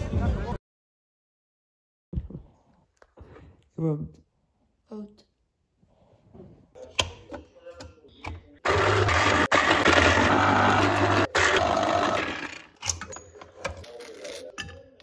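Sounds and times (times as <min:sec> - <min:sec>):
citrus juicer motor hum: 0:08.6 - 0:12.7
orange grinding on juicer: 0:08.6 - 0:12.7.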